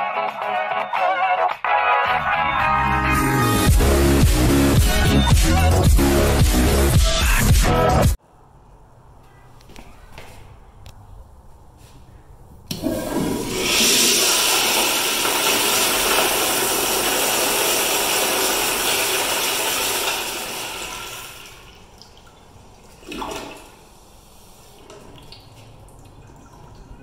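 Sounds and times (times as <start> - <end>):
toilet flushing: 12.7 - 27.0.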